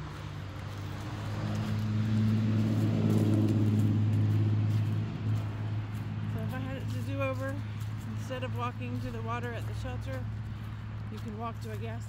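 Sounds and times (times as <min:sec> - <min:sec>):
car engine humming: 0:00.0 - 0:12.0.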